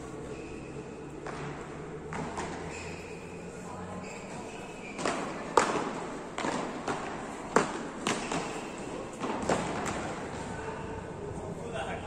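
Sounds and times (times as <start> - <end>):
paddles striking ball: 5.0 - 10.4.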